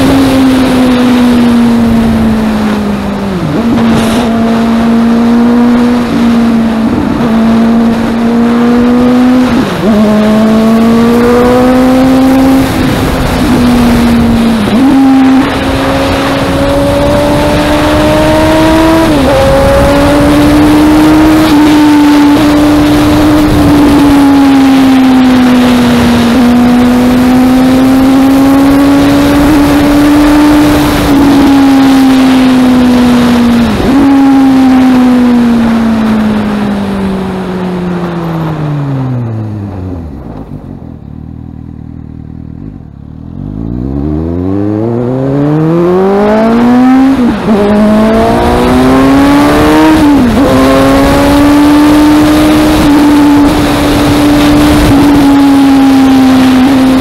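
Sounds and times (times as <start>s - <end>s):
loud wind noise: 0.0s - 41.6s, 42.6s - 57.0s
motorcycle engine at high revs: 0.0s - 57.0s.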